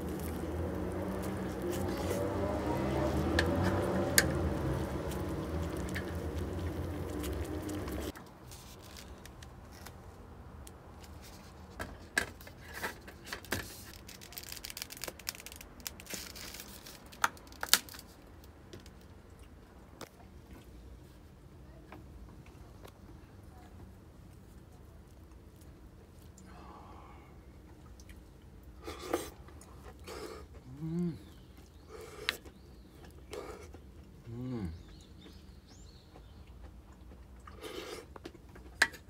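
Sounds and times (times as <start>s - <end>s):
low rumble: 0.0s - 8.1s
packaging crinkling and tearing: 0.0s - 10.0s, 13.2s - 19.0s.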